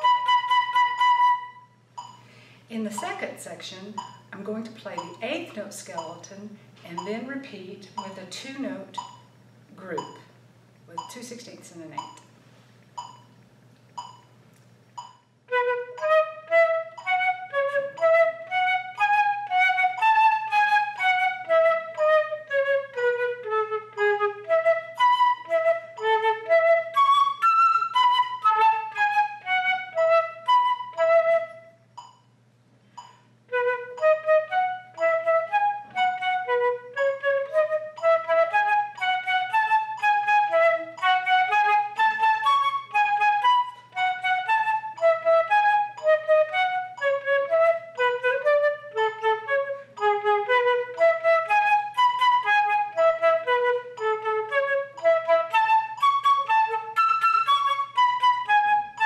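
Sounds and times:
solo flute playing: 0.0 - 1.8, 15.4 - 31.8, 33.4 - 59.0.

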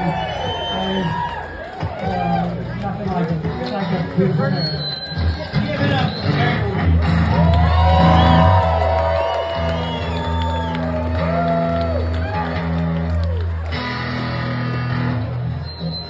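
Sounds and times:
bass notes: 1.8 - 16.0
electric guitar lead line bending: 9.6 - 15.6.

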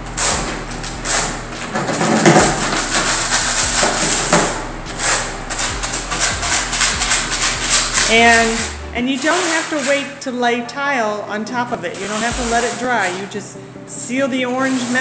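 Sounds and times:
trowel scraping mortar on concrete: 0.0 - 10.2, 11.9 - 13.4, 14.0 - 15.0.

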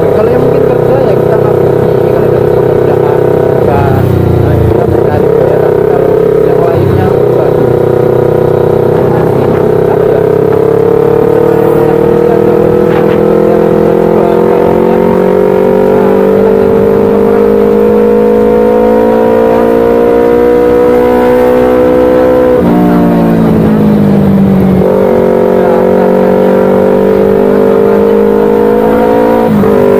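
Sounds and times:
motorcycle engine pulling: 0.0 - 18.5.

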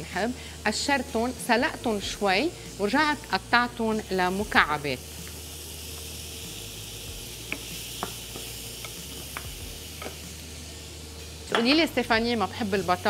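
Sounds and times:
vegetables sizzling in a frying pan: 0.0 - 13.0
wooden spoon tapping bowl and pan: 11.5 - 11.8.

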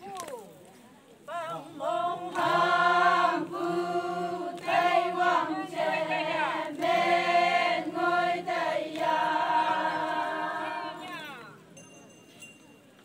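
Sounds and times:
women singing unaccompanied: 1.3 - 11.5.

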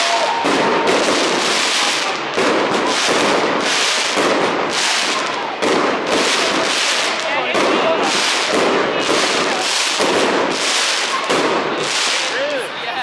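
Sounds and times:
fireworks crackling: 0.0 - 13.0.

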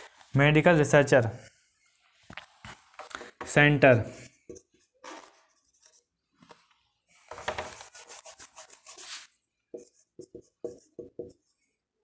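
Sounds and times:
rubbing strokes on writing surface: 7.1 - 11.8.

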